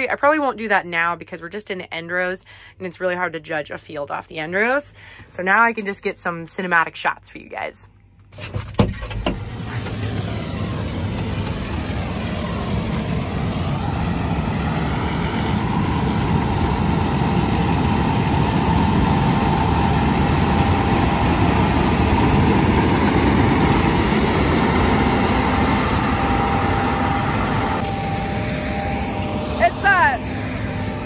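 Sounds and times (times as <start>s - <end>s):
heavy farm machinery running: 8.4s - 31.0s.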